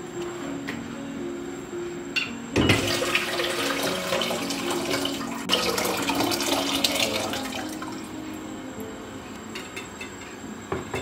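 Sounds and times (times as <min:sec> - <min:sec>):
water pouring into metal pot: 0:02.7 - 0:08.0.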